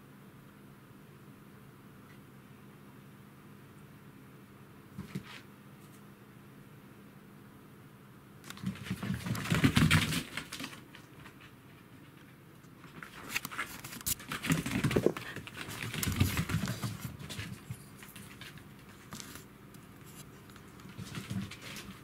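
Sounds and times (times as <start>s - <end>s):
paws scrabbling on floor: 8.5s - 22.0s.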